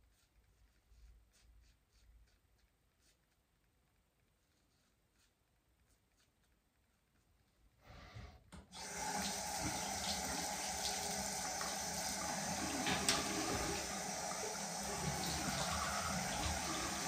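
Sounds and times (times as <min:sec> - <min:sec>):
tap running into sink: 0:08.6 - 0:17.0.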